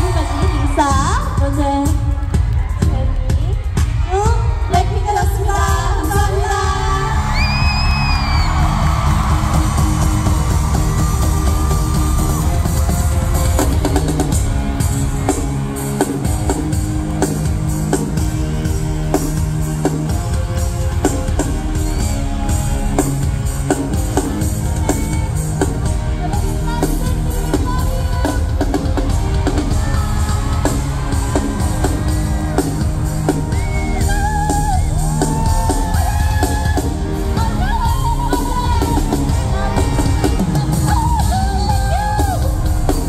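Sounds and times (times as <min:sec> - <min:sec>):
live pop concert music: 0:00.0 - 0:43.0
crowd shouting: 0:28.2 - 0:37.2.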